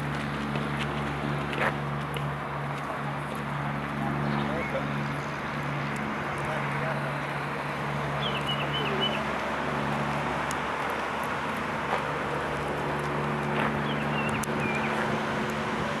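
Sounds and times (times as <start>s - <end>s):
low motor hum: 0.0s - 16.0s
bird chirping: 8.2s - 9.3s, 13.8s - 15.0s.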